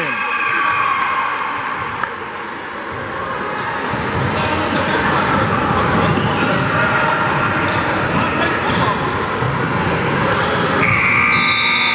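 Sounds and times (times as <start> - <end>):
murmur of spectators: 0.0 - 11.9
sneakers squeaking: 2.5 - 4.8, 5.4 - 11.9.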